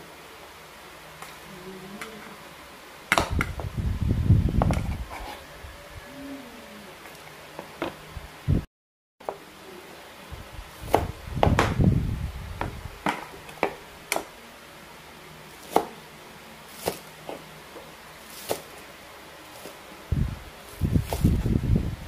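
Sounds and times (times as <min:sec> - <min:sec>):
knife chopping on wooden board: 0:10.9 - 0:11.8, 0:15.6 - 0:15.9, 0:16.8 - 0:17.4, 0:18.4 - 0:18.7.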